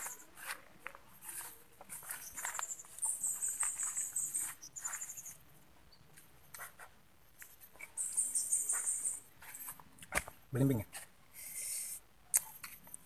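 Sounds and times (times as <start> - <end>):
faint scuffs and clicks: 0.0 - 5.4, 6.1 - 11.1
high-pitched animal chirping: 8.0 - 9.2.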